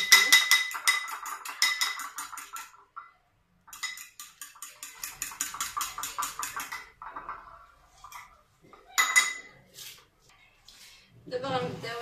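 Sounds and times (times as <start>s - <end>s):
fork clinking against bowl: 0.0s - 3.0s, 3.7s - 7.0s.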